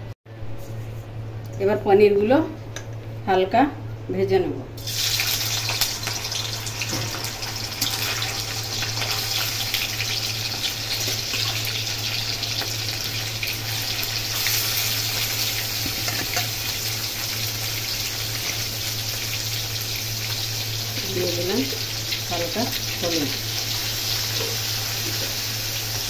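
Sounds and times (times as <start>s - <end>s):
cheese sizzling in hot oil: 4.8s - 26.0s.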